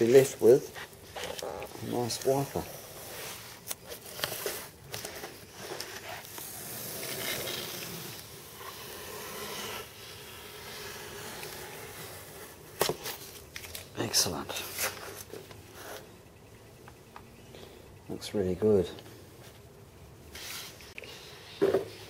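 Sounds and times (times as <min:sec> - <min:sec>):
tape peeling off: 0:00.8 - 0:13.9.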